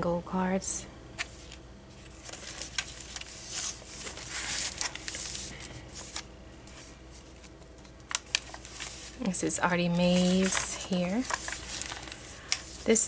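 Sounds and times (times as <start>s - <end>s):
paper and card rustling: 1.2s - 13.0s.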